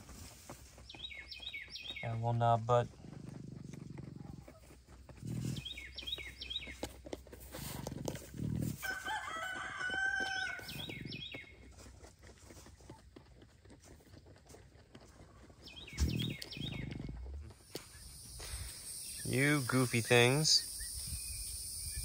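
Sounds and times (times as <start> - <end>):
animals chewing lettuce: 0.0 - 20.6
rooster crowing: 8.8 - 10.7
high bird chirps: 15.7 - 17.1, 17.8 - 22.0.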